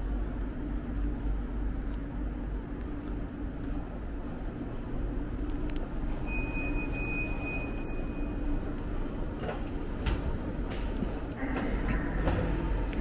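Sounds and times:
low hum: 0.0s - 13.0s
high steady tone: 6.2s - 8.6s.

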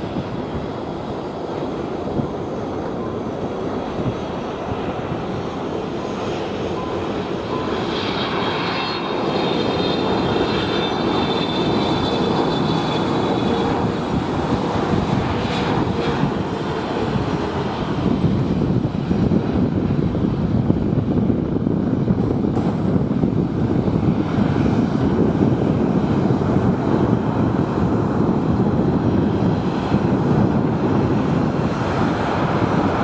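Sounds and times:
high engine whine: 0.0s - 33.0s
jet airliner rumble: 0.0s - 33.0s.

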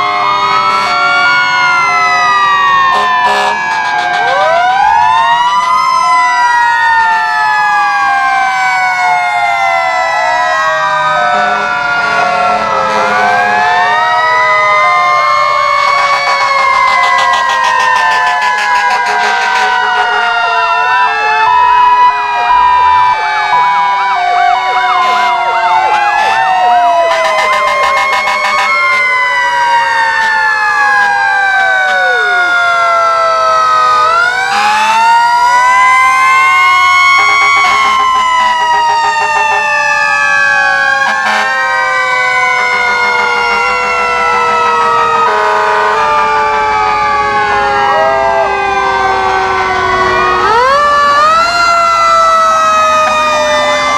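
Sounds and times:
fire truck sirens wailing: 0.0s - 53.9s.

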